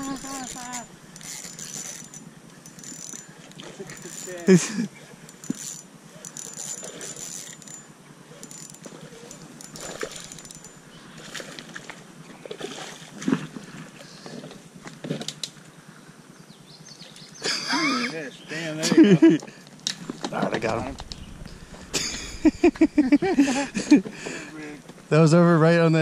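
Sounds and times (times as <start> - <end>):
spinning reel winding: 0.0 - 10.8
clicks and knocks of rod and reel: 0.0 - 15.8.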